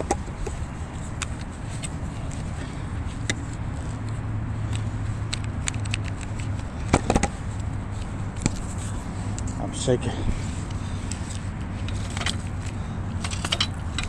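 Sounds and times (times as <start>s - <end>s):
microphone handling clicks and rubbing: 0.0s - 9.6s, 10.3s - 14.0s
low steady rumble: 6.2s - 14.0s.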